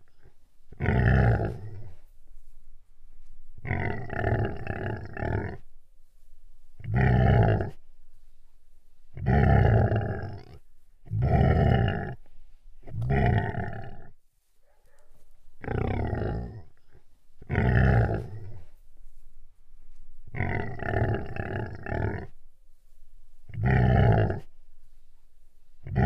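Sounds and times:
lion roaring: 0.0 - 2.0, 3.6 - 5.6, 6.8 - 7.8, 9.2 - 12.2, 12.9 - 14.1, 15.6 - 16.8, 17.4 - 18.7, 20.3 - 22.4, 23.5 - 24.5.

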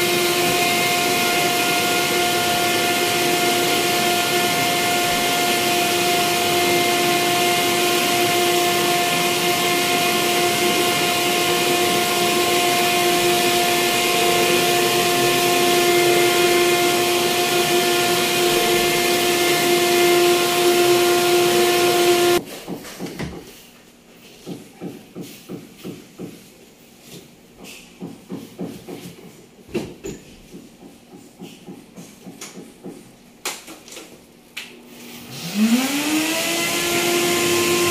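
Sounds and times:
vacuum cleaner whining: 0.0 - 22.4, 34.9 - 37.9
faint knocks and shuffling: 22.4 - 33.2.

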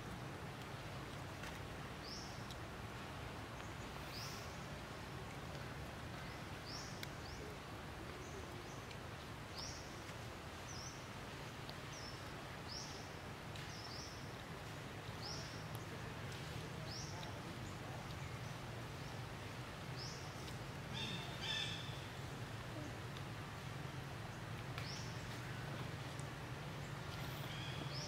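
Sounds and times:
faint clicks: 5.2 - 9.0, 24.4 - 26.4.

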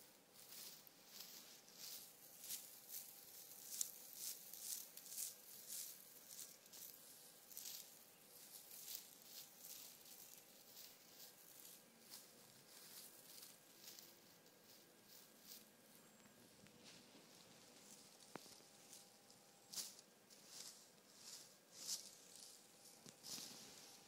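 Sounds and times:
kitten rustling fabric: 16.8 - 24.0.

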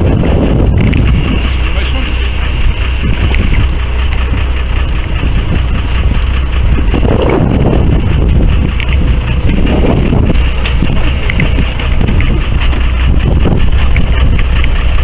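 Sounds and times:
boat engine humming: 0.0 - 15.0
wind buffeting microphone: 0.0 - 15.0.

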